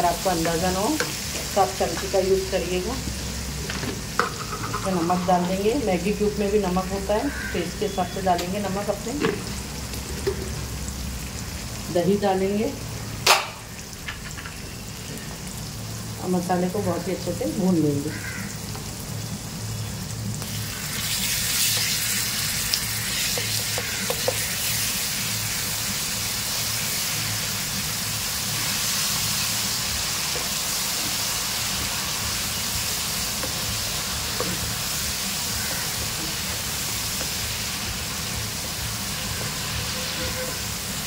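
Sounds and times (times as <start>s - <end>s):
food sizzling in hot oil: 0.0s - 41.0s.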